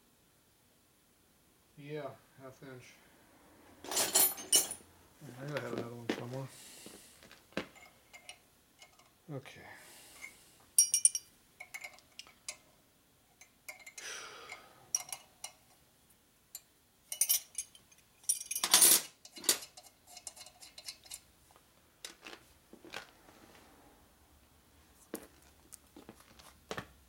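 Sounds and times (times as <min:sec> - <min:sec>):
wrenches clinking on metal: 0:03.9 - 0:04.8, 0:10.8 - 0:12.6, 0:17.1 - 0:21.3.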